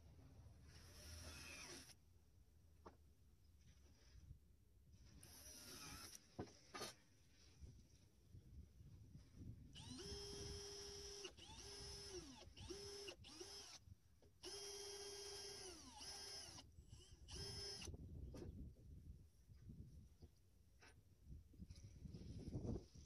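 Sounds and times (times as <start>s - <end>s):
cordless drill whining: 0.7s - 2.0s, 5.2s - 6.3s, 9.8s - 13.8s, 14.4s - 18.0s.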